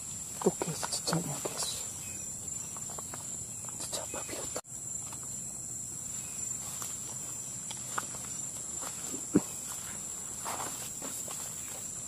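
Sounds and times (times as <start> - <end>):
insects droning: 0.0 - 12.0
footsteps on muddy leafy ground: 6.1 - 12.0.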